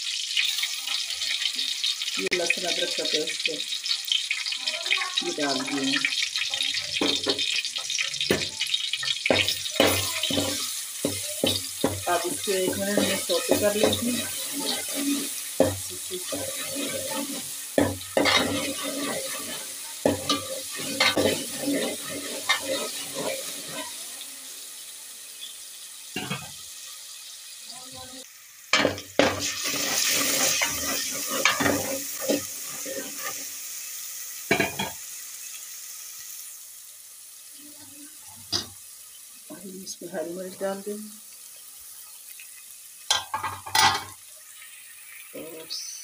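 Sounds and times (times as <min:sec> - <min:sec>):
spices sizzling in hot oil: 0:00.0 - 0:46.0
metal spoon scraping a pot: 0:09.8 - 0:24.0, 0:29.2 - 0:33.4.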